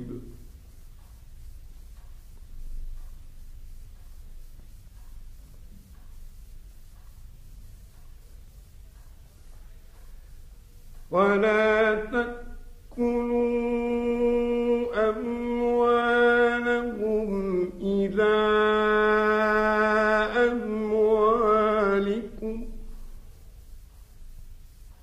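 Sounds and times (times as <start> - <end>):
man chanting melodic recitation: 0.0 - 0.5, 11.0 - 22.9.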